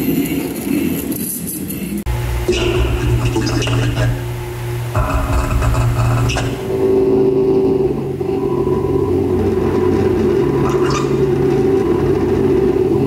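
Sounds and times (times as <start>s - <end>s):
low electronic drone: 2.0s - 13.0s.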